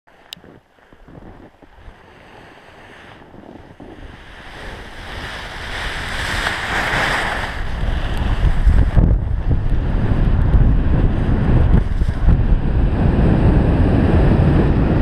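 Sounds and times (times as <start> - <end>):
wind rushing over microphone: 0.2 - 15.0
skis sliding over snow: 0.4 - 12.4.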